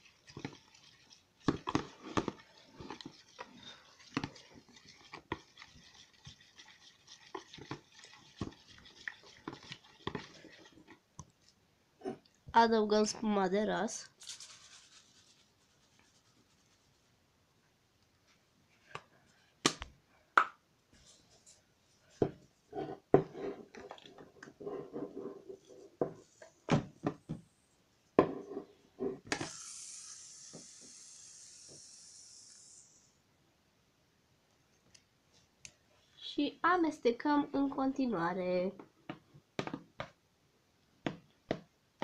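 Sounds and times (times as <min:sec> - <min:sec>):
aerosol can spraying foam: 0:29.4 - 0:33.1.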